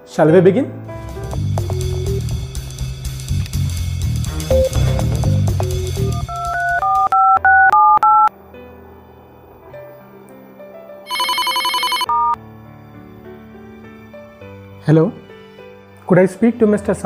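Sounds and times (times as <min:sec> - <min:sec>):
soft background music: 0:00.0 - 0:17.0
keypad dialing beeps: 0:06.0 - 0:08.3, 0:11.1 - 0:12.4
phone ringing warble: 0:06.1 - 0:08.3, 0:11.1 - 0:12.4.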